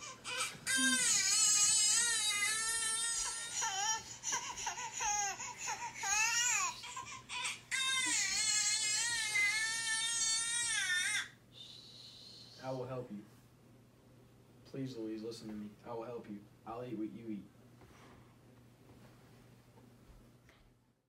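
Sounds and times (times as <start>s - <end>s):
baby crying: 0.0s - 11.4s.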